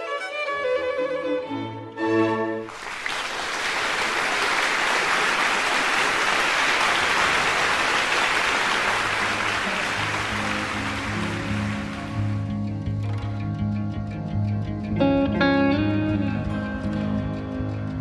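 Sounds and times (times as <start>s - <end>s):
people applauding: 2.7s - 12.5s
low bowed string notes: 9.9s - 18.0s.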